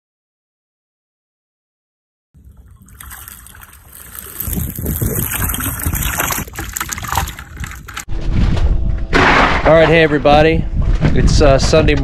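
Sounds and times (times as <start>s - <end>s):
water rushing past boat: 2.4s - 8.1s
wind buffeting microphone: 2.4s - 9.2s, 10.0s - 12.0s.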